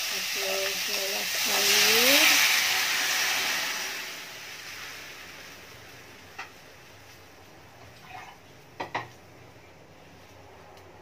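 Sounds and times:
wok hissing: 0:00.0 - 0:08.2.

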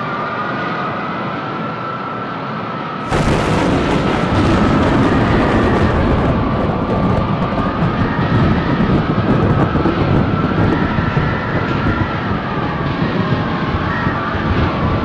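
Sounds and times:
wavering whistling whine: 0:00.0 - 0:15.0
rushing wind rumble: 0:02.9 - 0:15.0.

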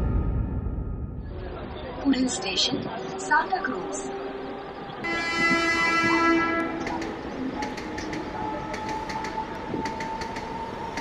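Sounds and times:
train running with whine and clicks: 0:02.1 - 0:11.0
train horn: 0:05.0 - 0:07.1, 0:08.0 - 0:10.9.

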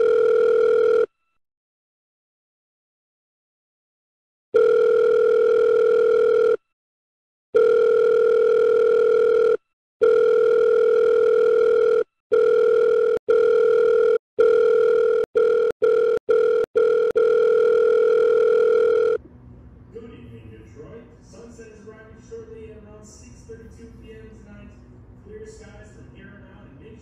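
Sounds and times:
buzzy telephone ringing tone: 0:00.0 - 0:01.1, 0:04.6 - 0:06.6, 0:07.6 - 0:19.2.

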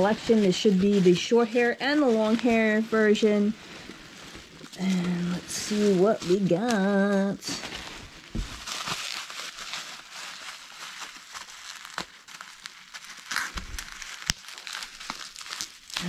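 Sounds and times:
bubble wrap crinkling: 0:00.0 - 0:16.0
small crackling clicks: 0:13.2 - 0:16.0.

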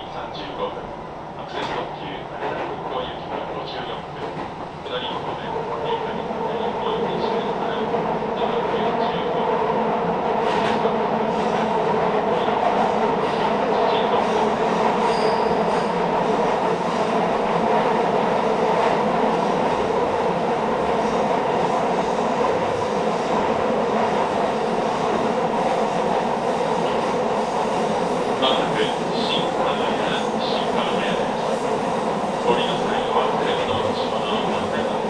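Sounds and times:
train wheels rumbling on rail: 0:00.0 - 0:35.0
wheels squealing on track: 0:15.1 - 0:15.9.

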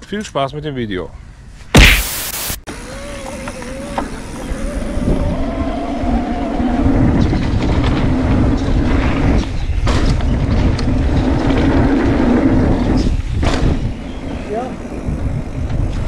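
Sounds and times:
bike tyres rumbling on dirt: 0:04.2 - 0:16.0
bike rattling: 0:06.9 - 0:13.8.

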